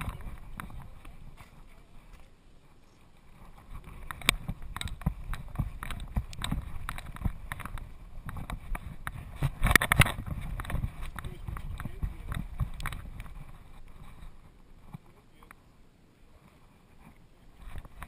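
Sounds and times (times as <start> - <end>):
camera knocking and rattling: 0.0 - 2.3, 3.4 - 15.1, 17.6 - 18.0
harness jostling: 0.0 - 15.1.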